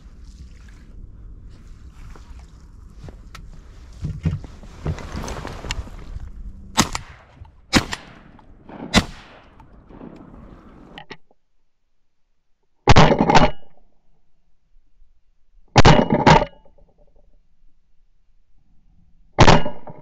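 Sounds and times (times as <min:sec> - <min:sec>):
rustling: 0:00.0 - 0:11.0
shotgun shots: 0:06.8 - 0:11.0.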